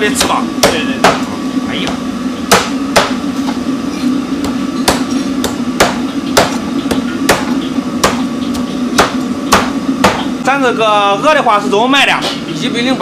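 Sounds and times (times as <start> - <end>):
steady low hum: 0.0 - 13.0
cleaver chopping on wooden block: 0.2 - 1.3, 2.5 - 3.2, 4.4 - 10.3.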